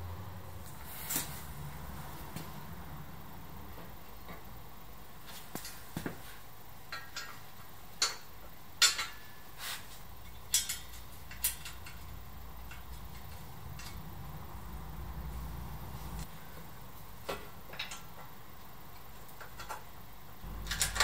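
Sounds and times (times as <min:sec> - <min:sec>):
metallic clinks of bolts: 0:10.5 - 0:13.0.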